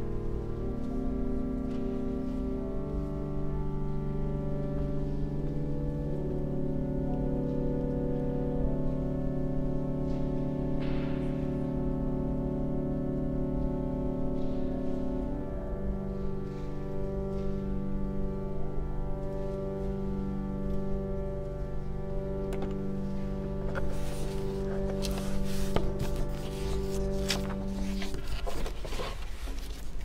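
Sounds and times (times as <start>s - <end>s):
organ chords: 0.0s - 29.2s.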